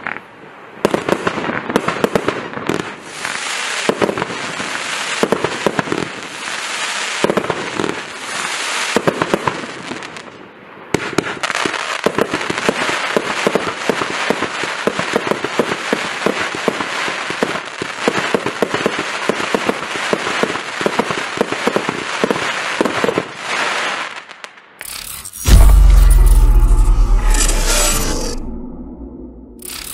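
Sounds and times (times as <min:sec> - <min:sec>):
crackling firework pops: 0:07.2 - 0:08.0, 0:08.9 - 0:10.1, 0:11.0 - 0:23.3.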